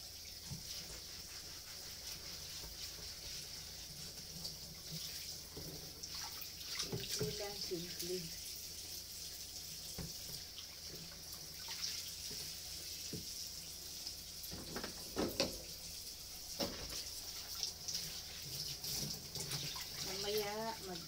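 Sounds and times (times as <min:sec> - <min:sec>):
cutting board knocks and clatters: 0:14.5 - 0:15.6, 0:16.6 - 0:17.0
tap running into steel sink: 0:14.5 - 0:15.7, 0:16.6 - 0:17.1.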